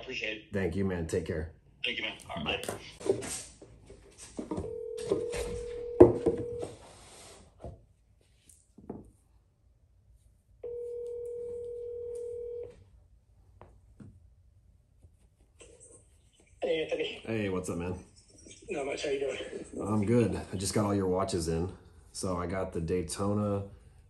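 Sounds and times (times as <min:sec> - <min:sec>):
telephone ringback tone: 0:04.6 - 0:06.8, 0:10.6 - 0:12.8.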